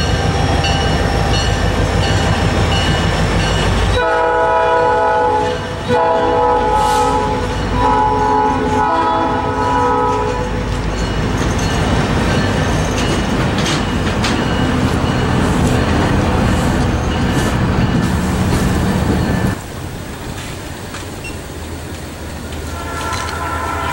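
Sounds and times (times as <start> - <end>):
train cars rumbling on steel wheels: 0.0 - 23.9
locomotive air horn blasts: 4.0 - 10.6, 22.7 - 23.9
clicks at rail joints: 12.9 - 14.6.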